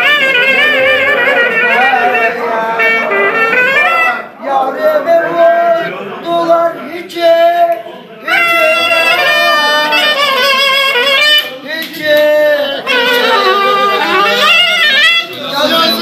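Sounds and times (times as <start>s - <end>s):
clarinet melody: 0.0s - 4.4s, 8.3s - 11.6s, 12.8s - 16.0s
man singing: 4.4s - 15.1s.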